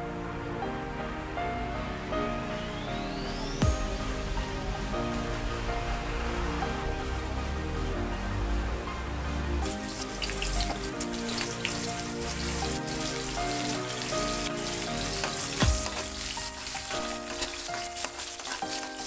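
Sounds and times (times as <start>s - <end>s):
background music: 0.0s - 19.0s
onions sizzling in hot oil: 9.6s - 19.0s.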